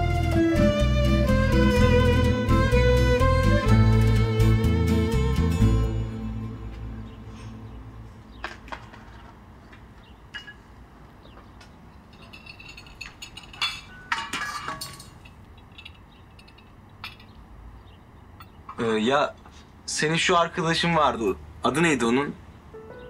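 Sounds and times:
dishes and glassware clinking: 10.3s - 10.7s, 12.1s - 17.4s.

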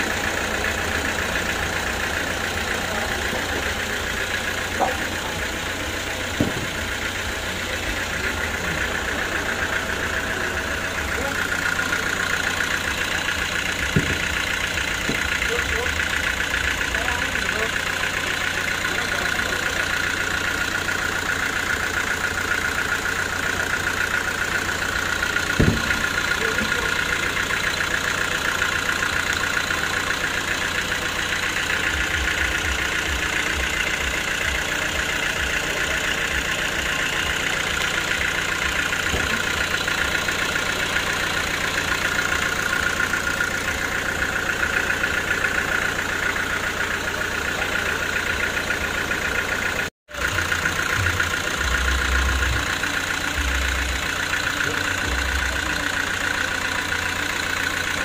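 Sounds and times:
sawmill saw droning: 0.0s - 58.0s
sharp knock: 25.6s - 26.1s.

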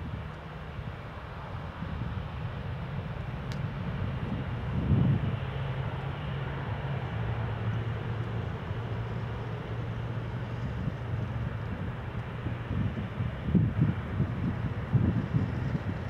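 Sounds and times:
jet engines rumbling: 0.0s - 16.0s.

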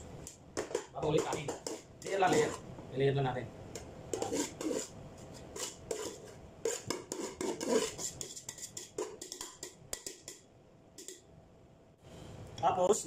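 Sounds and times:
utensil scraping against a bowl: 0.6s - 2.6s, 3.8s - 10.4s.

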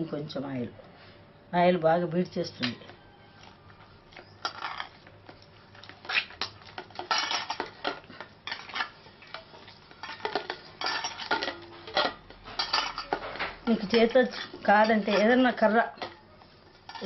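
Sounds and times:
steel bowl clattering: 4.4s - 5.0s, 6.0s - 16.2s, 16.8s - 17.0s.

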